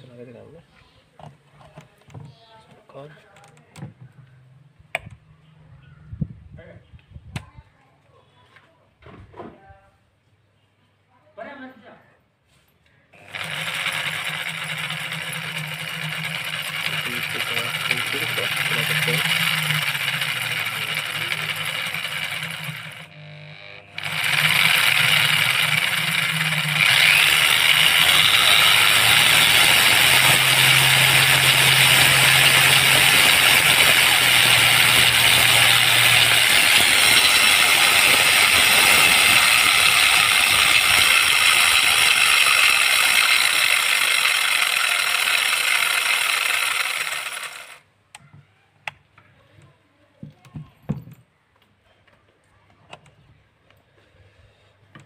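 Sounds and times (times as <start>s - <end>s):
angle grinder chainsaw running: 13.2s - 47.8s.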